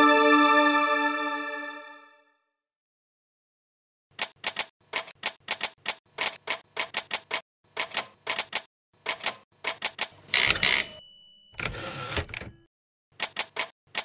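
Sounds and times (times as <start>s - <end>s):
typewriter keystrokes: 4.2s - 10.9s, 11.6s - 12.6s, 13.2s - 14.0s
typewriter carriage rasp: 4.2s - 11.0s, 11.6s - 12.6s.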